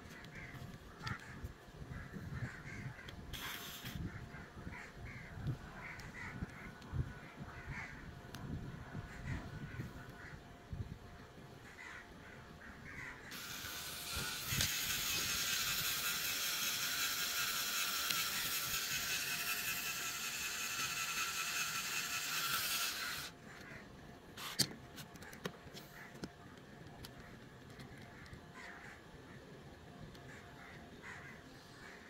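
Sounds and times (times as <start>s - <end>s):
small electric motor whirring: 3.3s - 4.1s, 13.3s - 23.4s, 24.4s - 24.7s.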